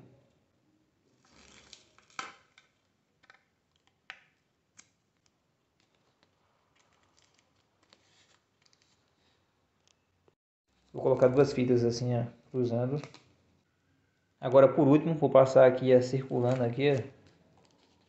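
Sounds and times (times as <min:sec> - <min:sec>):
adhesive tape crinkling: 0:01.2 - 0:10.0, 0:13.0 - 0:13.4, 0:16.5 - 0:18.0.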